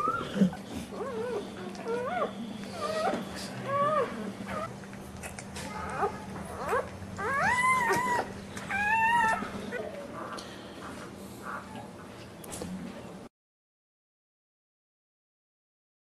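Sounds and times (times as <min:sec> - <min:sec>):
puppies crying and squealing: 0:00.0 - 0:10.4, 0:11.4 - 0:12.0.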